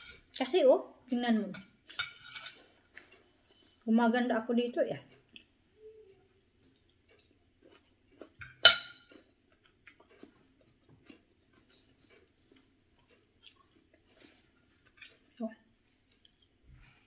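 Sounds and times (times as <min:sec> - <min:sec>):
chewing with mouth closed: 0:06.6 - 0:08.4, 0:09.0 - 0:16.6.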